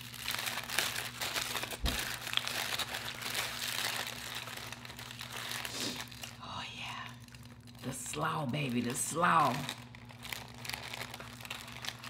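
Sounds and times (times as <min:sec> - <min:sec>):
foil wrapper crinkling: 0:00.0 - 0:12.0.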